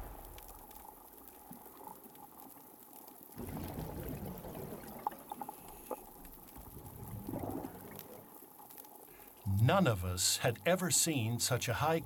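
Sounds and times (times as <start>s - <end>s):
low rushing noise: 0.0s - 0.5s
faint water hiss: 0.0s - 12.0s.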